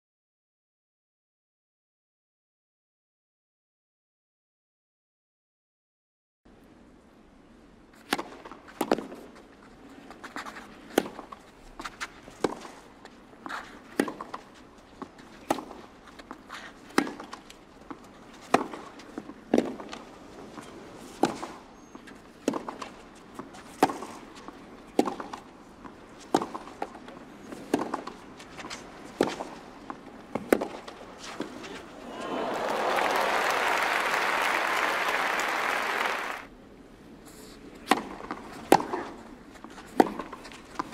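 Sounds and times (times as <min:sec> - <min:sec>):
racket striking tennis ball: 0:15.4 - 0:16.3, 0:16.9 - 0:20.0, 0:22.4 - 0:25.5, 0:26.2 - 0:31.8, 0:37.8 - 0:39.2, 0:39.8 - 0:40.9.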